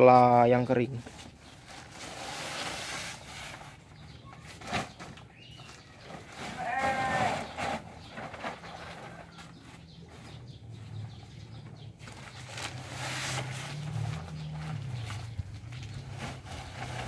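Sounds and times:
plastic sack rustling: 0:01.0 - 0:10.3, 0:12.0 - 0:17.0
low engine hum: 0:09.9 - 0:17.0.

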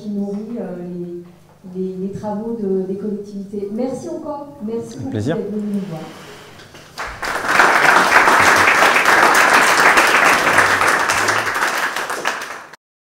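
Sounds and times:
audience applauding: 0:06.6 - 0:12.8.

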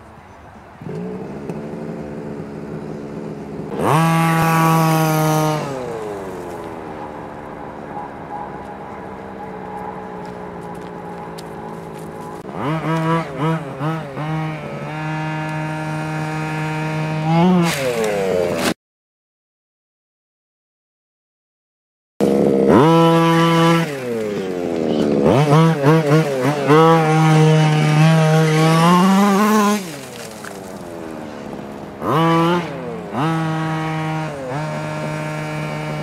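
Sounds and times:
model truck engine revving: 0:00.8 - 0:06.7, 0:11.8 - 0:18.7, 0:22.2 - 0:36.0.

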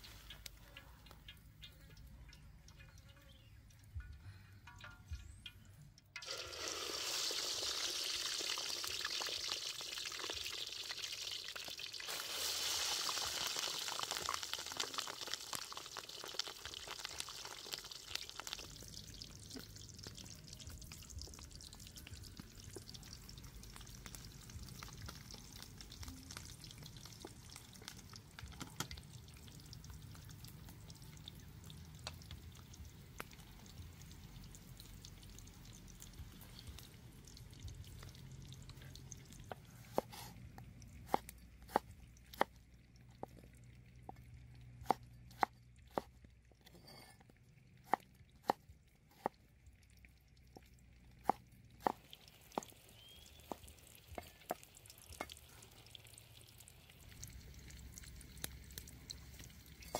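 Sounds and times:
food sizzling in hot oil: 0:06.2 - 0:39.0.

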